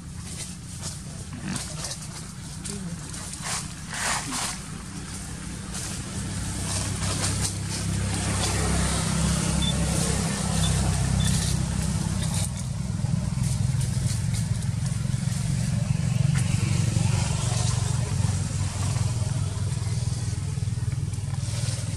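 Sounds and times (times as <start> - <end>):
low engine rumble: 0.0 - 21.9.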